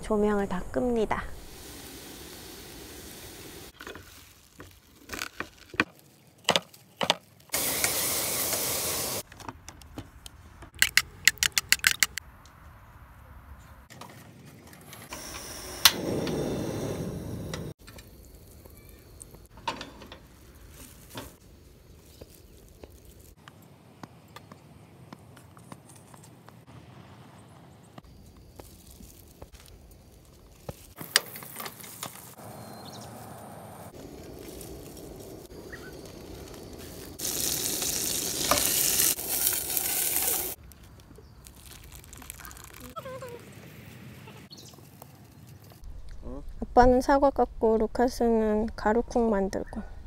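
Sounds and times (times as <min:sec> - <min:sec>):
hiss: 0:01.3 - 0:03.8, 0:07.5 - 0:09.2, 0:15.1 - 0:17.8, 0:34.0 - 0:40.6.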